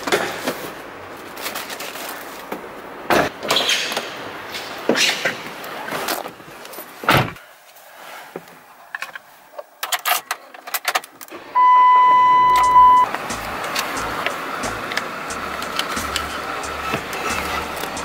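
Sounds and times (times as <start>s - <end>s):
handling noises: 0.0s - 18.0s
high electronic beep: 11.6s - 13.1s.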